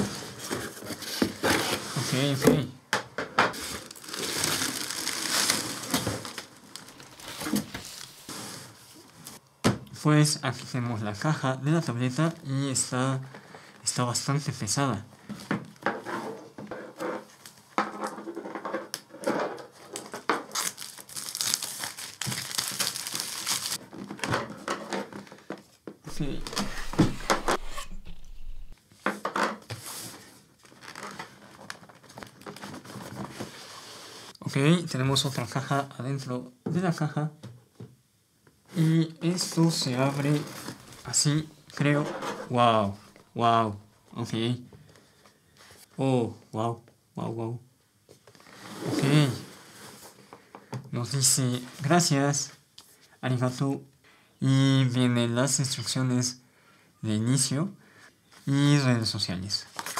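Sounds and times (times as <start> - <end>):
plastic packing crinkling: 3.6 - 8.3, 19.8 - 23.8.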